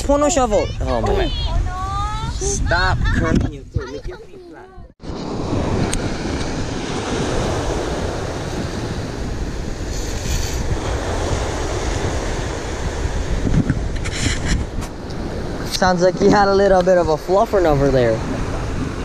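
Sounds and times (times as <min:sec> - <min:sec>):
wind blowing across microphone: 0:00.0 - 0:19.0
surf breaking on shore: 0:05.0 - 0:19.0.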